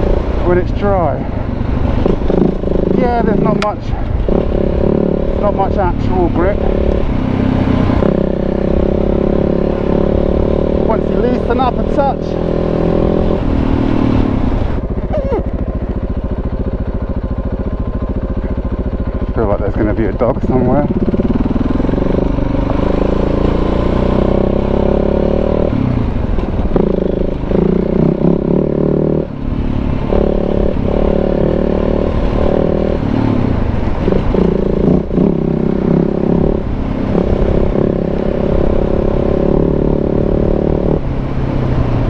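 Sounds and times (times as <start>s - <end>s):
clatter and rumble of riding: 0.0s - 42.0s
motorcycle engine revving: 0.0s - 42.0s.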